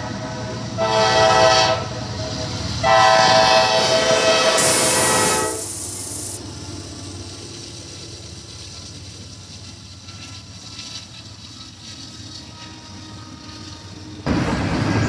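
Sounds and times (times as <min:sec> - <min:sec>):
freight train rumbling past: 0:00.0 - 0:15.0
locomotive air horn chord: 0:00.8 - 0:01.9, 0:02.8 - 0:05.7, 0:12.4 - 0:14.3.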